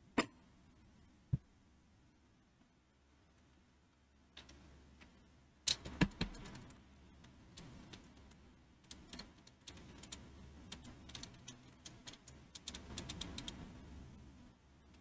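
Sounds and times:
small clicks and ticks: 4.4s - 13.8s.

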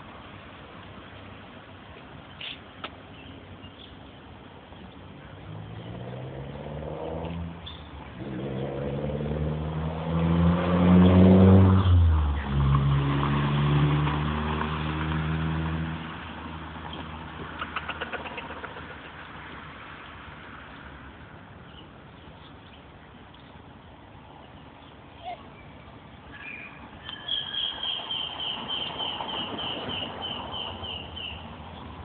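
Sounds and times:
vehicle engine passing by: 5.2s - 20.9s.

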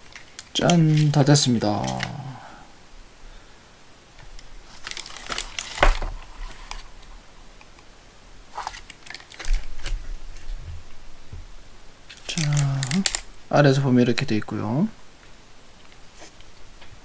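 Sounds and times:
plastic and metal parts clicking: 0.1s - 2.2s, 4.2s - 6.8s, 8.6s - 10.0s, 12.1s - 13.3s.

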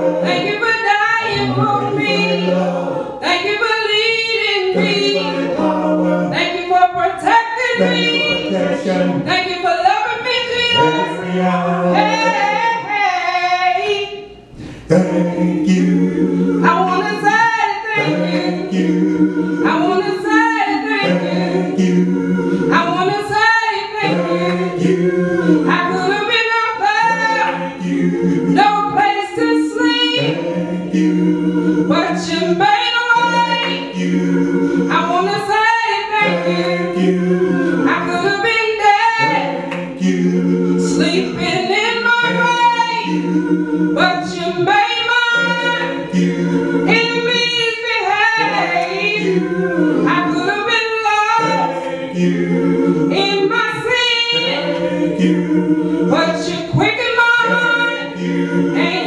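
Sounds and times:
woman singing into a microphone: 28.6s - 30.2s, 34.9s - 36.2s, 44.0s - 45.8s, 53.1s - 54.5s, 56.1s - 57.8s.

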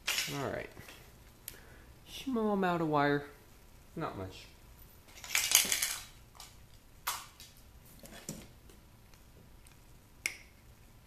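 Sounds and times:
wires rustling and scraping: 4.8s - 10.0s.

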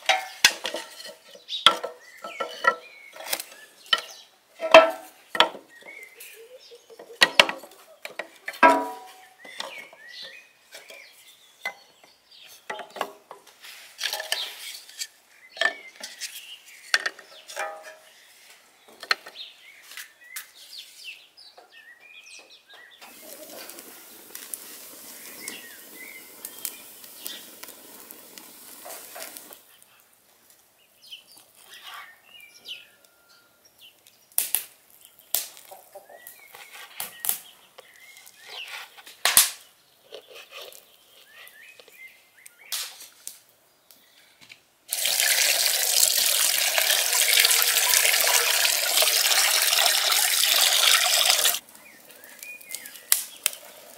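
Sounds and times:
tap water gushing into a bowl: 44.9s - 51.6s.

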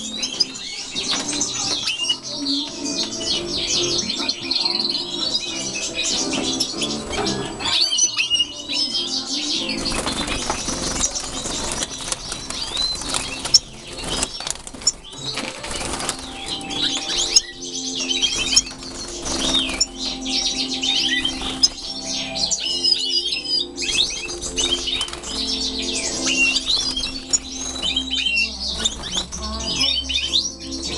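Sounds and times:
birds twittering and chirping: 0.0s - 30.9s
wings flapping: 9.6s - 22.7s, 23.9s - 29.9s.

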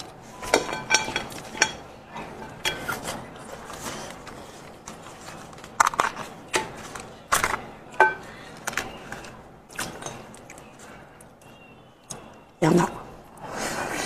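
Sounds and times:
bone crackling and snapping: 2.6s - 12.4s.

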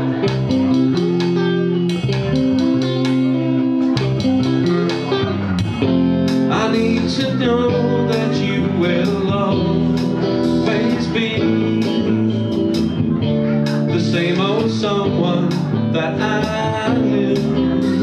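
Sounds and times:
bass guitar: 0.0s - 18.0s
electric guitar: 0.0s - 18.0s
man singing into a microphone: 6.4s - 12.4s, 13.4s - 18.0s.

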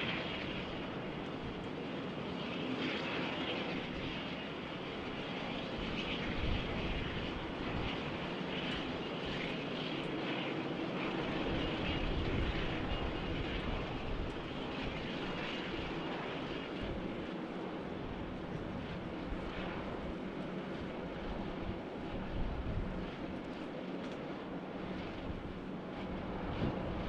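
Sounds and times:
jet engines running: 0.0s - 27.0s
wind buffeting microphone: 5.5s - 10.2s, 11.0s - 23.8s, 24.5s - 27.0s.

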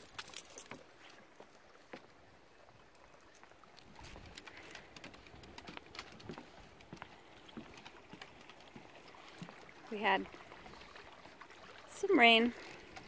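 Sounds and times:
creek rushing: 0.0s - 13.0s
footsteps on wooden boardwalk: 0.5s - 2.3s, 3.3s - 11.1s.

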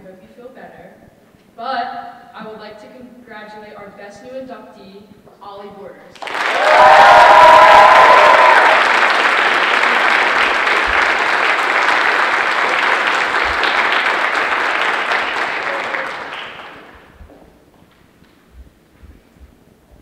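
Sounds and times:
audience applauding: 6.1s - 17.2s.

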